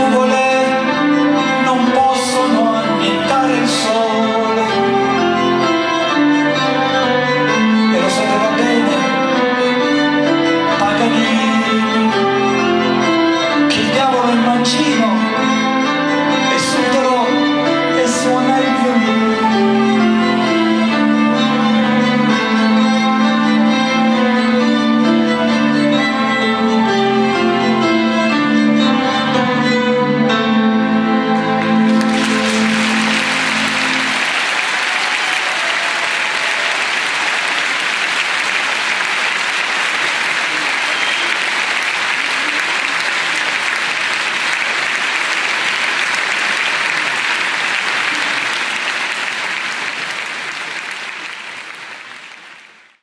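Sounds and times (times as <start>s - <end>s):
bowed strings ensemble: 0.0s - 50.7s
audience applause: 31.6s - 53.0s.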